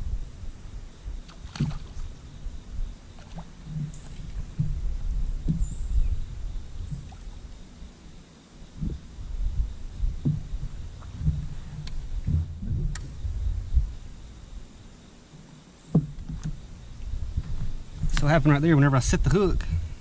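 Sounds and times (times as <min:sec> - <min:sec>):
low uneven rumble: 0:00.0 - 0:20.0
irregular thumps on boat deck: 0:03.2 - 0:06.1, 0:08.8 - 0:13.9, 0:15.9 - 0:18.5, 0:19.5 - 0:20.0.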